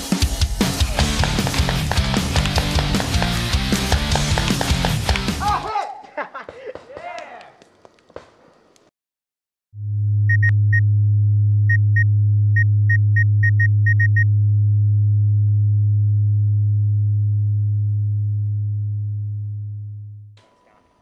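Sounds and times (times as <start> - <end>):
low electronic hum: 9.8 - 20.3.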